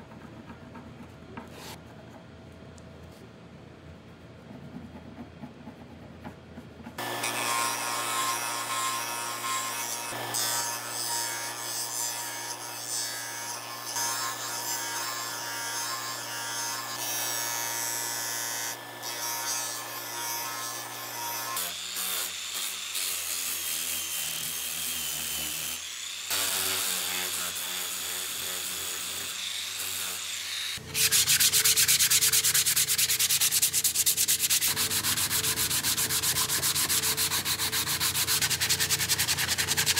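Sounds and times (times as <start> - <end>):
grinder sanding wood: 22.6 - 39.9
hand sanding strokes: 30.8 - 39.9.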